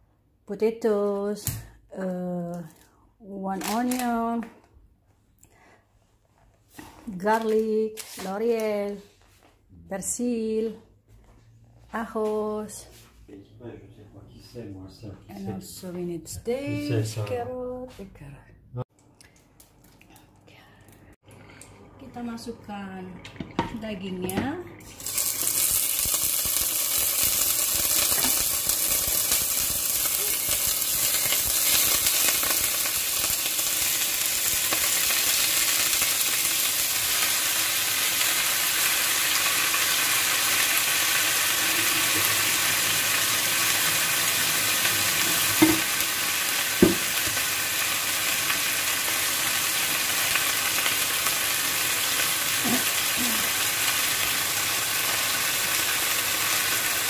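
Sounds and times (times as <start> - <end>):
beef sizzling in hot oil: 24.8 - 57.0.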